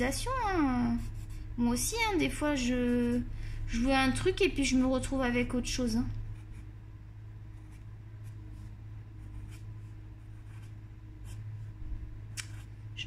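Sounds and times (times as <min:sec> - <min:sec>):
low steady hum: 0:00.0 - 0:13.0
coloured pencil rubbing on paper: 0:00.6 - 0:01.6.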